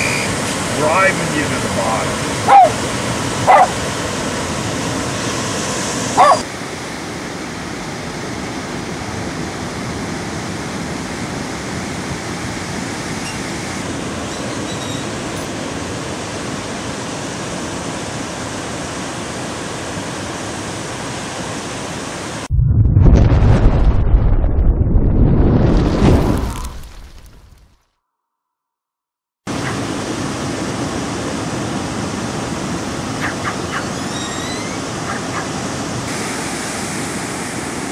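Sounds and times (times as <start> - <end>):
ocean surf breaking: 0.0 - 22.5, 29.5 - 34.1
dog barking: 2.4 - 2.8, 3.4 - 3.8, 6.2 - 6.4, 33.2 - 33.9, 35.0 - 35.6.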